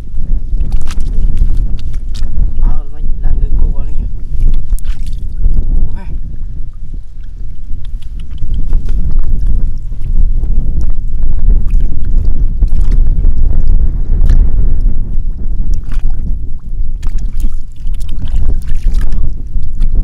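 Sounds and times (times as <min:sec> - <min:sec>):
wind buffeting microphone: 0:00.0 - 0:20.0
hands splashing in muddy water: 0:17.0 - 0:20.0.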